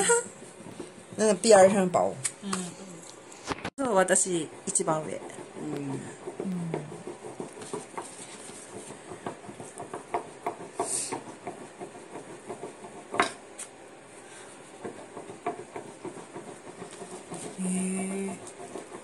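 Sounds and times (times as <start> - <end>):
rolling pin tapping on board: 4.7 - 13.4, 14.8 - 19.0.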